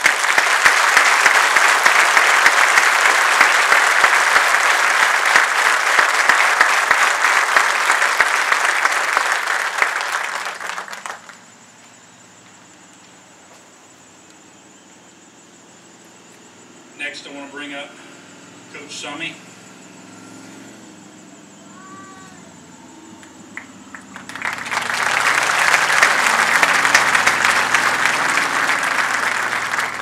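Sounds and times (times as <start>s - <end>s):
crowd applauding: 0.0s - 11.6s, 23.2s - 30.0s.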